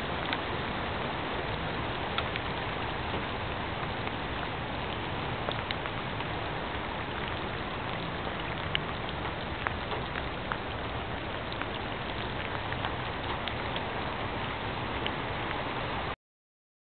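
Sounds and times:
raindrops ticking: 0:00.0 - 0:16.2
steady rain hissing: 0:00.0 - 0:16.2.

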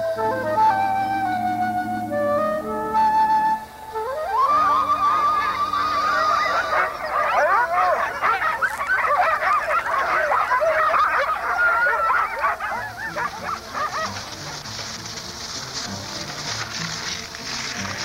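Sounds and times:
sled dogs yelping and barking: 0:04.0 - 0:18.0.

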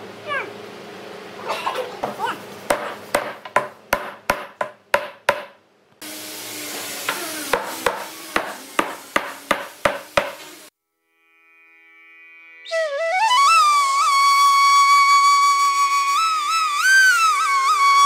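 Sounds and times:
hammer blows: 0:01.6 - 0:05.6, 0:07.0 - 0:10.6.

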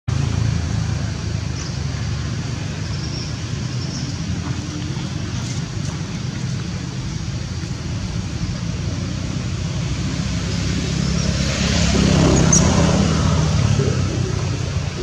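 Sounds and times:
low outdoor rumble: 0:00.1 - 0:15.0.

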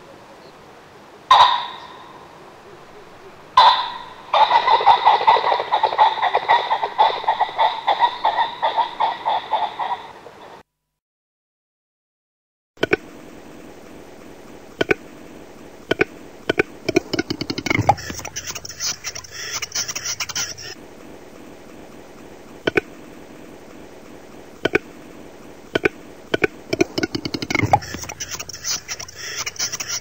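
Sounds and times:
bird clicking display song: 0:14.8 - 0:15.0, 0:15.9 - 0:20.8, 0:22.7 - 0:22.9, 0:24.6 - 0:24.9, 0:25.7 - 0:30.0
scraping hissing bird call: 0:15.7 - 0:20.8, 0:21.8 - 0:30.0.

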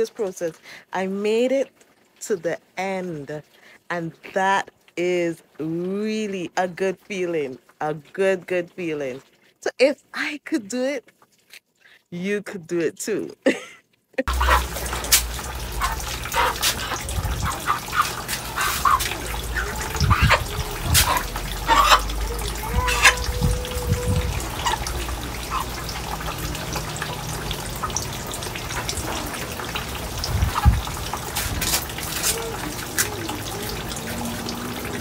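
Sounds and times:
water dripping and splashing: 0:00.0 - 0:35.0.

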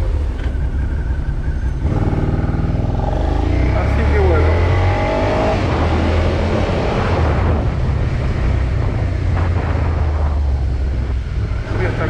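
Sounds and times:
wind rush on microphone: 0:05.4 - 0:12.0.

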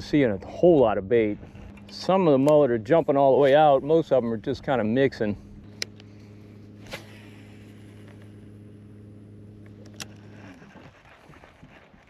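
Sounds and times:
low motor hum: 0:00.0 - 0:12.0
sharp clicks: 0:09.6 - 0:11.8.

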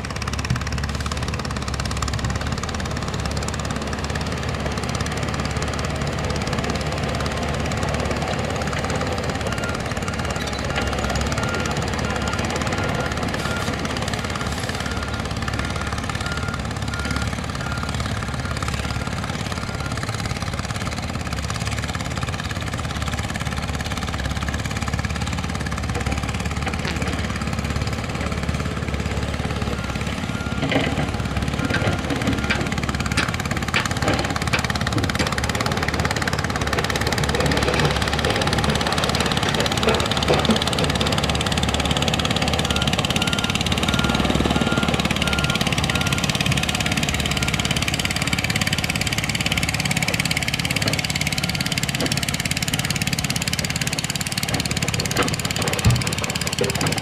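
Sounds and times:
heavy machinery diesel engines: 0:00.0 - 0:57.0
knocks and clanks: 0:54.4 - 0:57.0.

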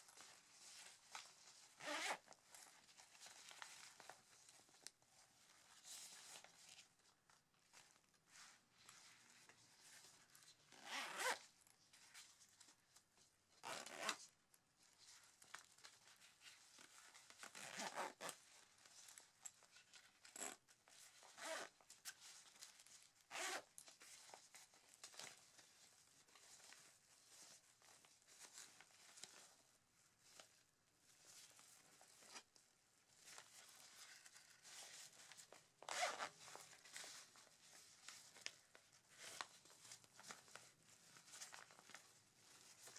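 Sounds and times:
fabric rustling: 0:00.0 - 0:14.2, 0:14.8 - 0:42.9
short zips of a zipper: 0:01.8 - 0:02.2, 0:10.7 - 0:11.4, 0:13.6 - 0:14.2, 0:17.5 - 0:18.4, 0:21.4 - 0:21.7, 0:23.3 - 0:23.7, 0:35.9 - 0:36.4.

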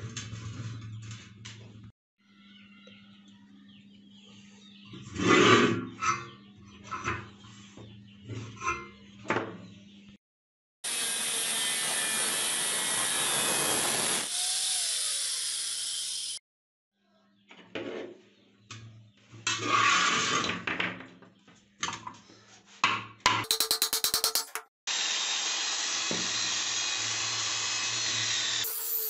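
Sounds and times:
steel rod being cut grinding: 0:10.8 - 0:16.4, 0:23.5 - 0:29.0.

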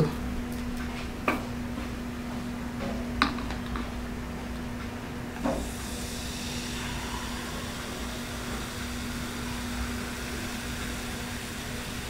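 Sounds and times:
soda pouring and fizzing: 0:05.5 - 0:12.0.

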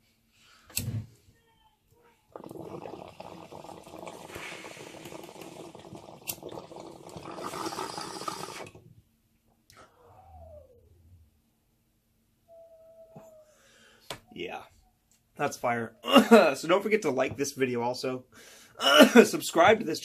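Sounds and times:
water bubbling in a bong: 0:02.3 - 0:08.8.

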